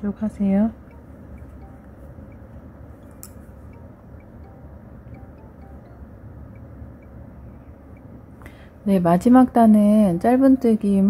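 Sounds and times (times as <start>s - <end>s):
low room hum: 0.0s - 11.0s
crochet hook ticking: 0.8s - 7.2s.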